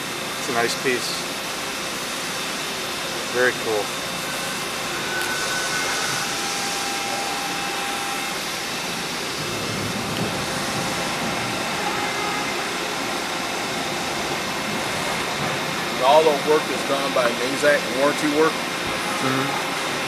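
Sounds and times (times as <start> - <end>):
coolant spraying hiss: 0.0 - 4.9, 6.0 - 20.0
faint thin machine whines: 0.0 - 20.0.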